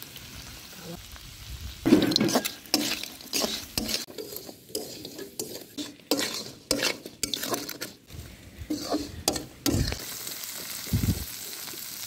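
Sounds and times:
food sizzling: 0.0 - 12.0
spatula scraping a wok: 1.9 - 10.1.

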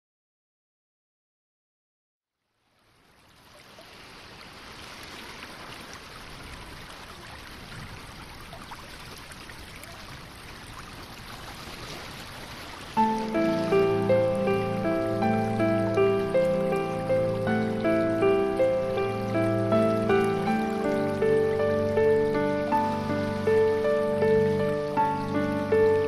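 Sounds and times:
music: 13.0 - 26.0
steady rushing hiss: 13.0 - 26.0.

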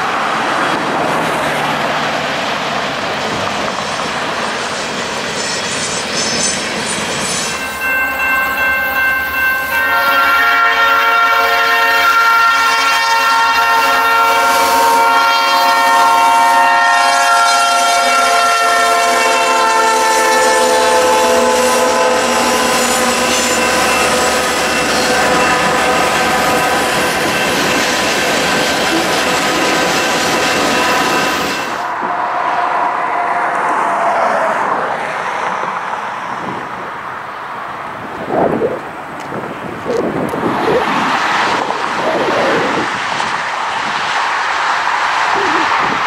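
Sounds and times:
highway traffic rushing: 0.0 - 46.0
locomotive air horn blast: 9.7 - 26.5.

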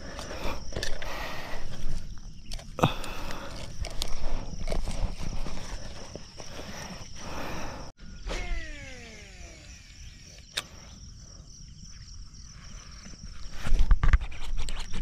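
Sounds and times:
high insect drone: 0.0 - 15.0
fishing reel spool whirring: 8.2 - 10.9.

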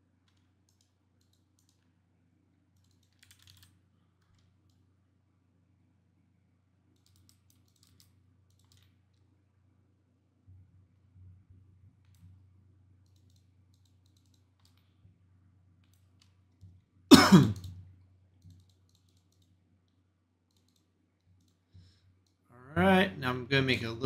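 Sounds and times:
low electrical hum: 0.0 - 24.0
computer mouse clicks: 0.2 - 2.0, 2.7 - 4.9, 6.9 - 9.3, 12.0 - 12.4, 13.0 - 15.0, 15.8 - 16.8, 17.5 - 22.4
man coughing: 17.1 - 17.6.

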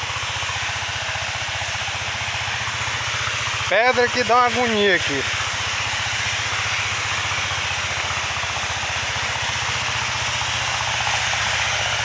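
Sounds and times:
constant hiss: 0.0 - 12.0
small engine running: 0.0 - 12.0.

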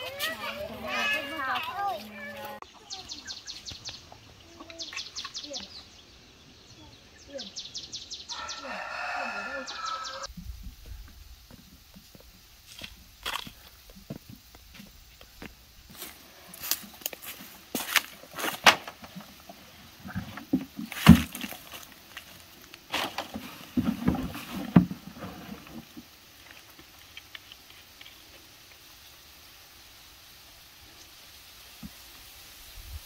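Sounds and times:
footsteps on dry path: 11.0 - 18.6.

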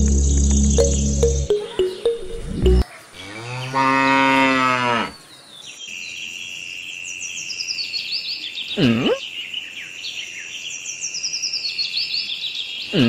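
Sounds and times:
music: 0.0 - 2.8
steady high tone: 0.0 - 2.8
cow mooing: 3.2 - 5.1.

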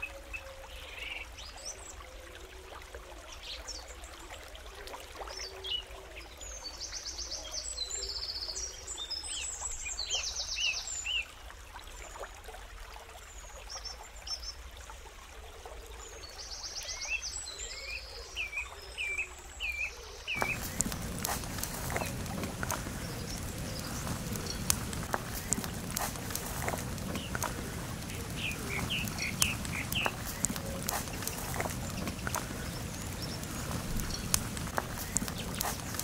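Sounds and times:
birds singing: 17.4 - 36.0
background hiss: 20.4 - 36.0.

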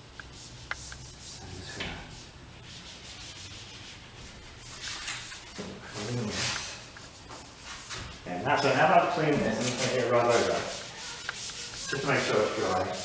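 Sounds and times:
cleaning wipe scrubbing car door: 9.5 - 13.0.

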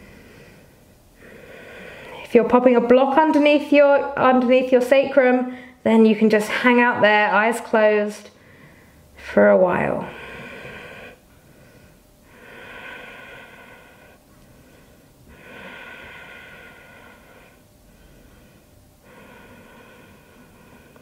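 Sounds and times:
woman breathing slowly: 0.0 - 2.3, 8.3 - 9.2, 10.0 - 21.0.

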